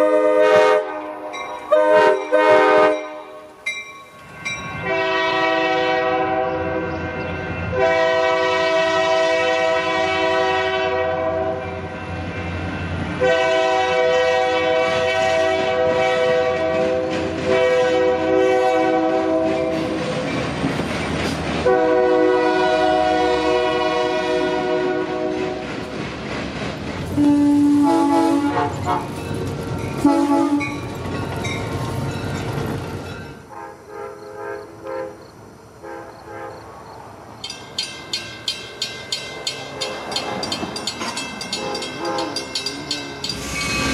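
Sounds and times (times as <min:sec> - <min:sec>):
locomotive air horn blasts: 0:00.0 - 0:03.5, 0:04.8 - 0:11.6, 0:13.2 - 0:20.0, 0:21.6 - 0:25.7, 0:27.1 - 0:29.2, 0:30.0 - 0:30.8, 0:33.5 - 0:35.2, 0:35.8 - 0:36.6, 0:41.6 - 0:43.9
train rumble and wheel clatter: 0:00.0 - 0:43.9.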